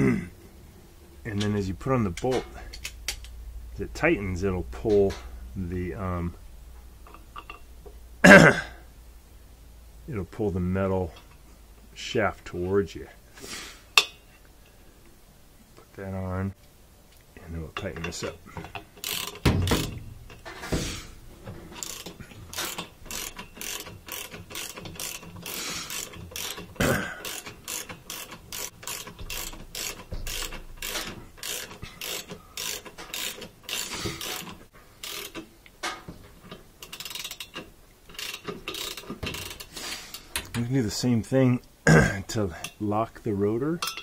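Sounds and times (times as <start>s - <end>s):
ratchet wrench clicking: 2.2s - 3.4s, 18.0s - 20.5s, 21.7s - 35.5s, 36.5s - 40.3s.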